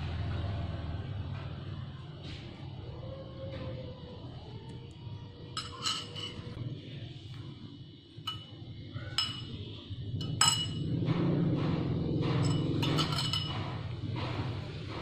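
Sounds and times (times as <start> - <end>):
low steady hum: 4.3 - 14.4
spoon clinking on ceramic bowl: 5.6 - 6.6, 8.3 - 10.9, 12.4 - 13.7.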